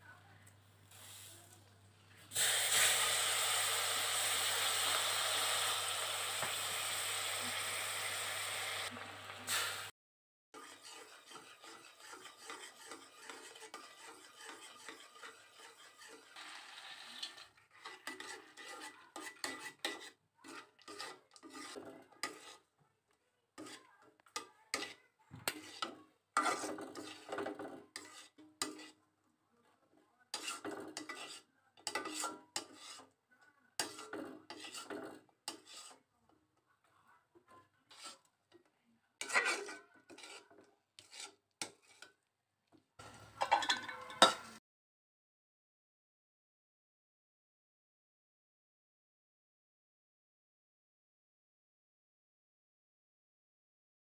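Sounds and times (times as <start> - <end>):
loud sizzling hiss: 2.3 - 9.9
metal spatula scraping pan: 2.4 - 9.9, 10.6 - 22.7, 23.6 - 29.0, 30.3 - 33.2, 33.8 - 36.1, 37.8 - 42.2, 43.0 - 44.6.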